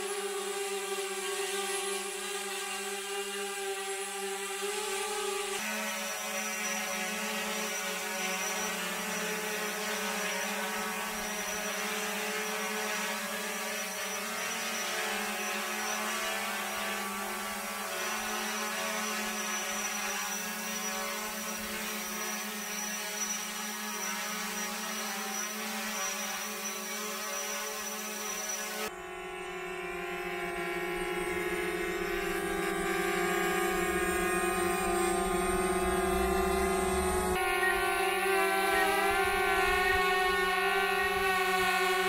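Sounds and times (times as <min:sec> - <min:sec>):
drone propellers humming: 0:27.5 - 0:42.0.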